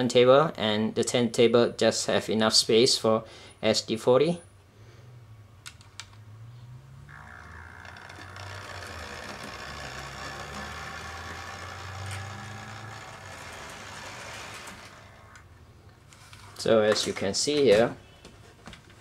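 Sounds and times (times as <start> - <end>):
model train motor whirring: 7.1 - 15.5.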